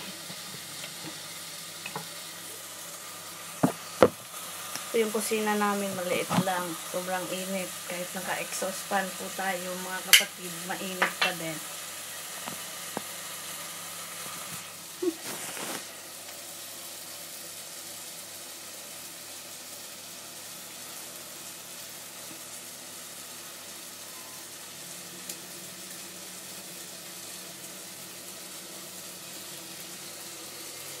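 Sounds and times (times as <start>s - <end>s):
fish sizzling in a frying pan: 0.0s - 31.0s
short rustle: 15.1s - 16.0s.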